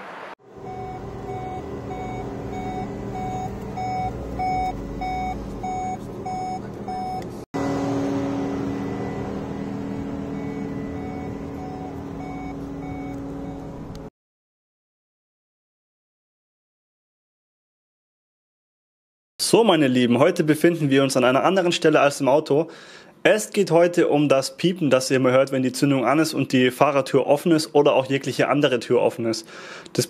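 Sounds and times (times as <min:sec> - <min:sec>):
steady hum: 0:00.4 - 0:14.1
door warning beeps: 0:00.6 - 0:07.4, 0:09.2 - 0:13.9.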